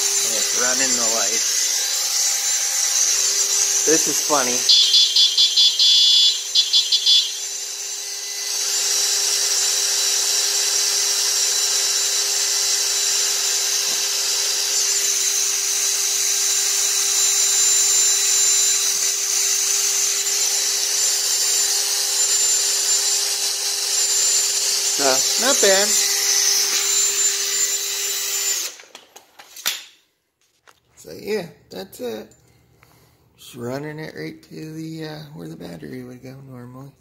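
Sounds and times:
electric horn beeping: 4.0 - 7.5.

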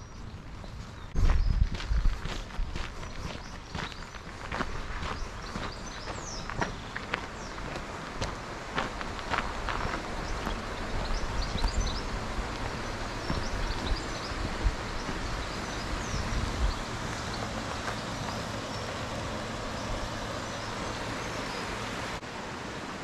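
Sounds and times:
rushing outdoor background noise: 0.0 - 23.0
footsteps thudding on a path: 1.2 - 18.5.

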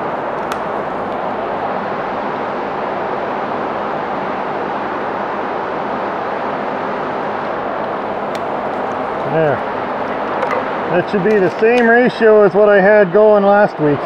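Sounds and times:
exhaust fan rushing: 0.0 - 14.0.

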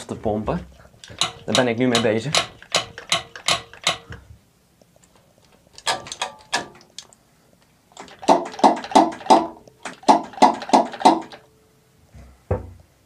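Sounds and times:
fuel priming lever clacking: 1.0 - 4.2.

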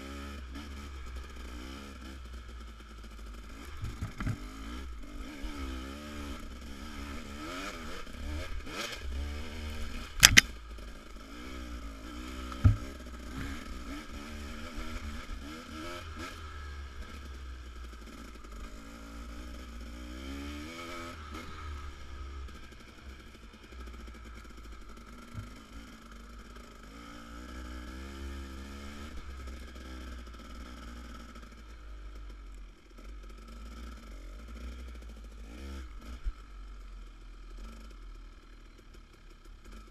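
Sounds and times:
dirt bike engine revving: 2.9 - 31.3
sharp knocks: 10.2 - 10.5, 12.5 - 13.6.

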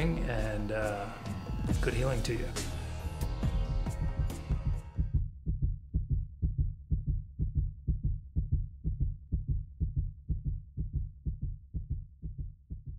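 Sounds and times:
heartbeat thumps: 4.0 - 12.9.

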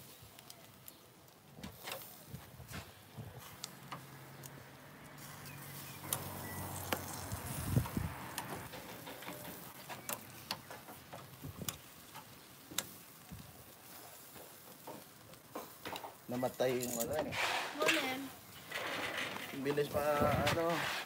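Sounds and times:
faint grill hiss: 0.0 - 21.0
tongs clicking on grill grate: 5.4 - 13.0.

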